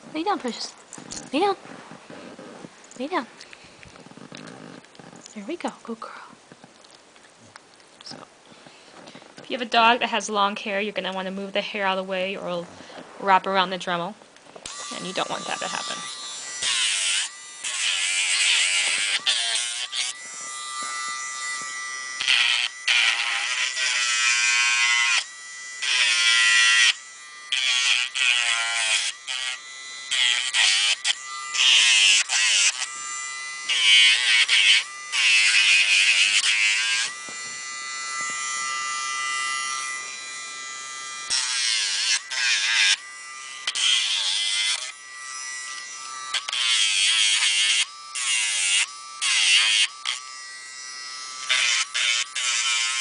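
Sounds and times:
rotary tool motor whining: 14.6s - 53.0s.

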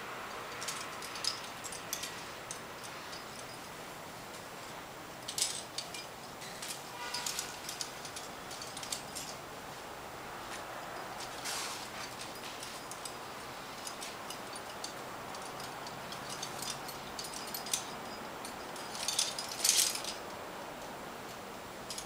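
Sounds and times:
faint steady hiss: 0.0s - 22.0s
metal gear clinking: 0.5s - 3.7s, 5.2s - 9.4s, 11.1s - 20.2s
metal jangling and scraping: 0.5s - 9.5s, 10.5s - 20.3s.

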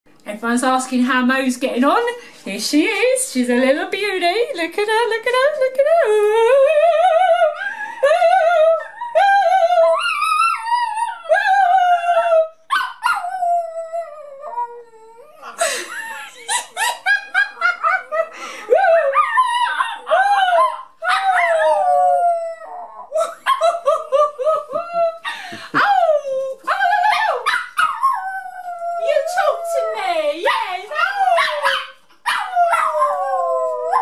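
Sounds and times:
puppy howling and yipping: 7.4s - 14.8s, 17.3s - 34.0s
woman howling: 28.0s - 31.7s.

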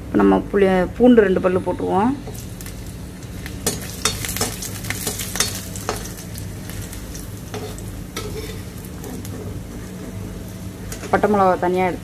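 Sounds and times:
chillies sizzling in oil: 1.1s - 12.0s
spatula scraping a pan: 7.5s - 10.0s.

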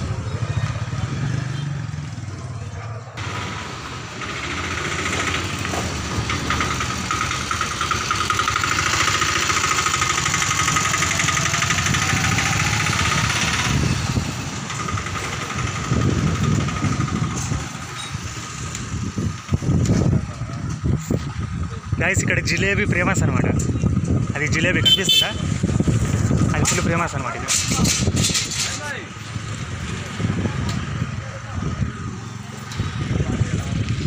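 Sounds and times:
motorcycle engines running: 0.0s - 34.0s
street traffic: 0.0s - 34.0s.

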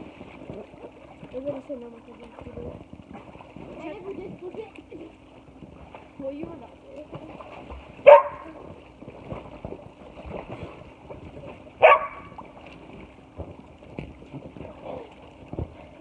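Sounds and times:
dog barking: 8.0s - 8.4s, 11.8s - 12.3s.

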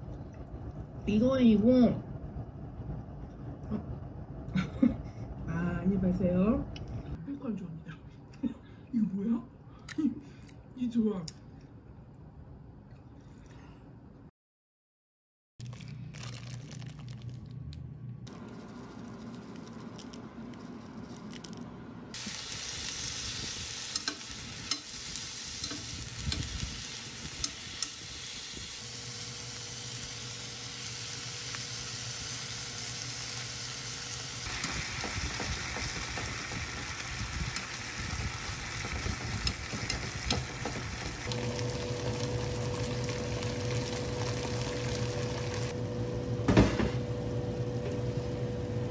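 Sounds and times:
low steady hum: 0.0s - 14.3s, 15.6s - 48.9s
food sizzling in a frying pan: 22.2s - 45.7s.

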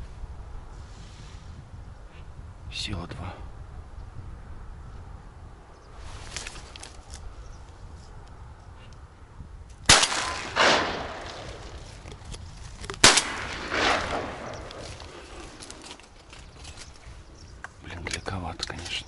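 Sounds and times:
shotgun shots: 9.9s - 11.8s, 13.0s - 15.0s.

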